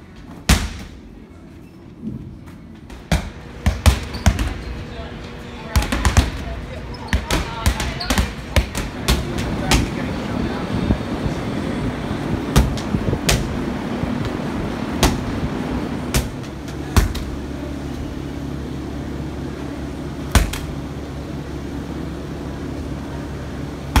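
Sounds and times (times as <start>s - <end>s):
steady low hum: 0.0s - 24.0s
medicine balls thudding on wall: 0.2s - 1.0s, 2.8s - 4.8s, 5.6s - 10.1s, 12.5s - 15.5s, 16.1s - 17.4s, 20.2s - 20.8s.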